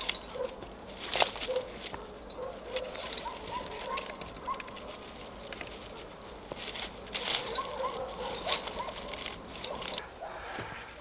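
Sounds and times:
feet on stony ground: 0.0 - 10.0
birds calling: 0.0 - 11.0
rope handling rustles: 0.0 - 11.0.

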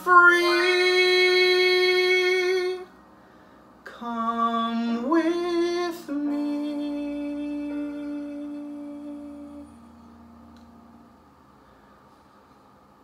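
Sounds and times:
man singing held notes: 0.0 - 2.9.

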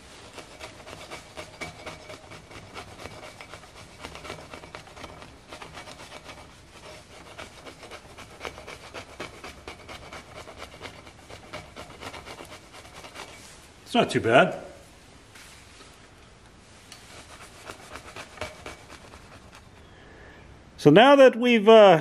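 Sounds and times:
putty knife scraping metal: 0.0 - 13.5, 16.9 - 19.8.

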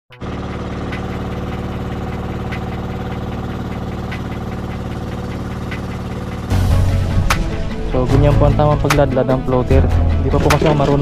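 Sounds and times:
boat engine running: 0.1 - 11.0.

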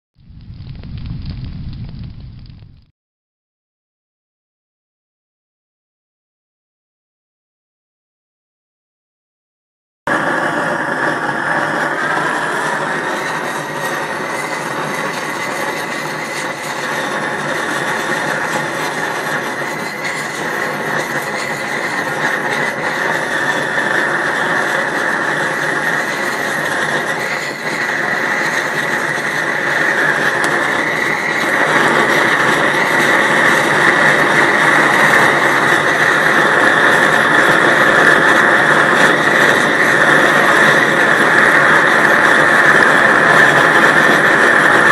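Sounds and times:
gas torch rushing flame: 10.1 - 44.9.

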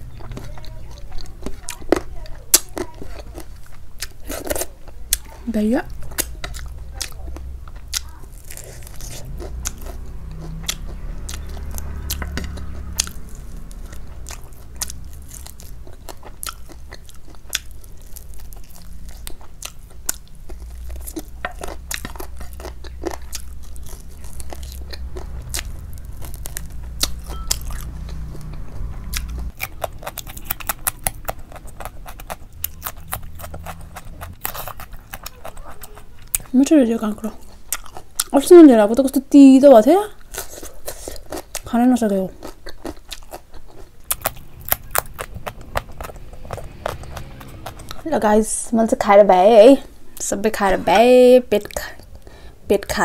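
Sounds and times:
chewing rice: 0.0 - 38.4, 40.1 - 48.0
crunchy cucumber bites: 29.1 - 36.6.

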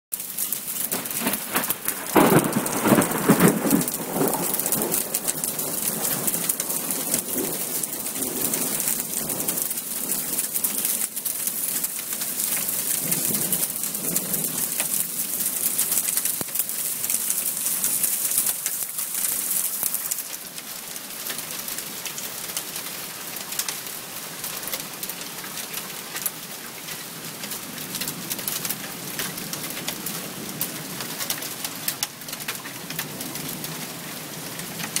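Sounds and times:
rain hissing: 0.2 - 28.7
thunder rumbling: 0.8 - 10.4.

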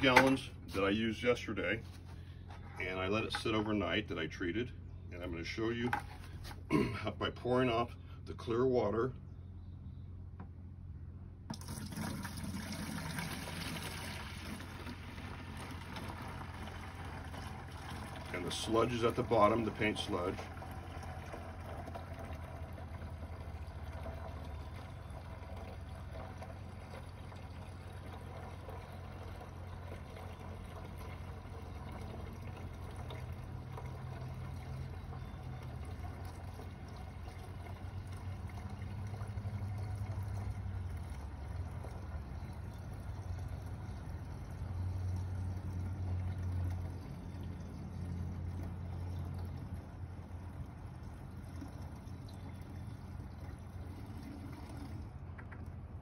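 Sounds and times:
water pouring into bucket: 11.5 - 56.0.

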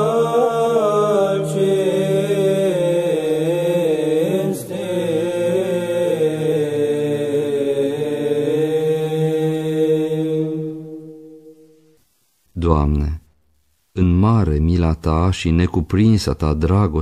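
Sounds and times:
male choir chanting: 0.0 - 11.7.

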